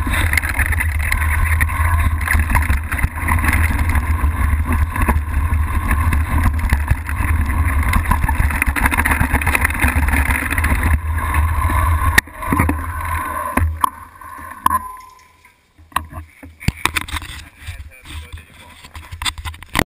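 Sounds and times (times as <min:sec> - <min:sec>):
bike clicks: 0:00.0 - 0:17.6
bike rattling: 0:00.0 - 0:19.8.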